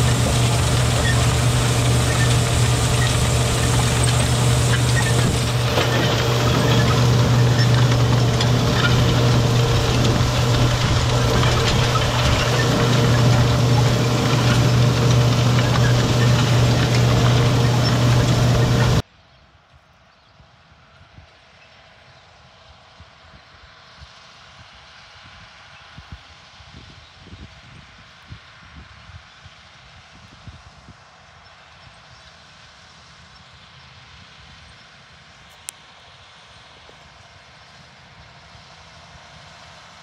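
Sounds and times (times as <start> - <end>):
tractor engine running: 0.0 - 19.0.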